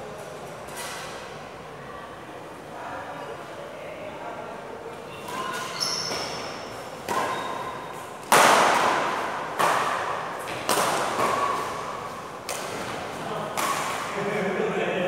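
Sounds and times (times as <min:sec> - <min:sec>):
racket hitting shuttlecock: 0:05.3 - 0:14.2.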